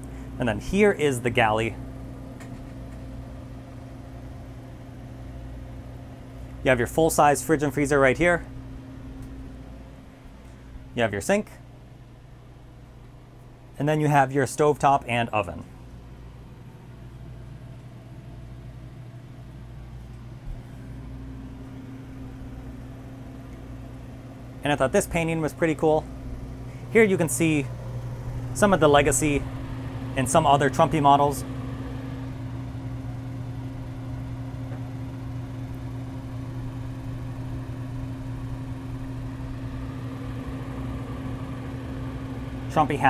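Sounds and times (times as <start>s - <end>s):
low mechanical hum of machinery: 0.0s - 43.0s
higher steady tone: 21.5s - 43.0s.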